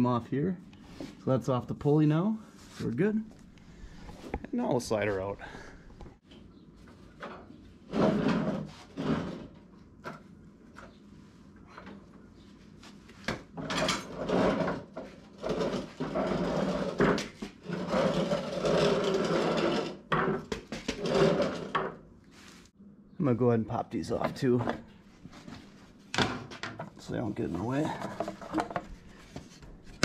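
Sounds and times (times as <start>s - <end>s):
mower deck scraping on concrete: 7.9s - 9.6s, 13.6s - 22.0s.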